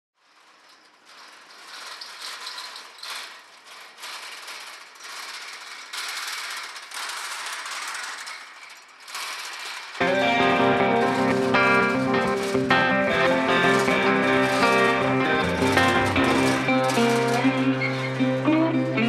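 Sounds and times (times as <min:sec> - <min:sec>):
barrels rolling on steel rails: 0:00.2 - 0:19.0
acoustic guitar music: 0:10.0 - 0:19.0.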